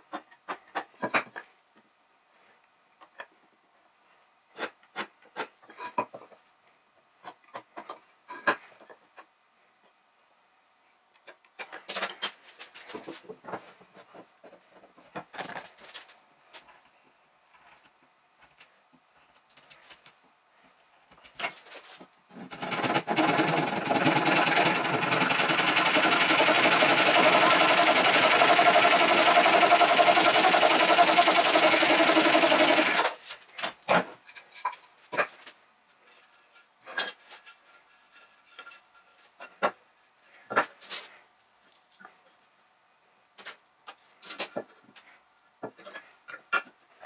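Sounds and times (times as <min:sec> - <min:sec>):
handsaw cutting wood: 0:22.4 - 0:33.2.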